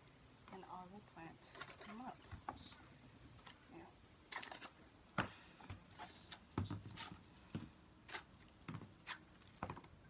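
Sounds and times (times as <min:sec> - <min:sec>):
plastic plant pots knocking: 0:05.2 - 0:07.8.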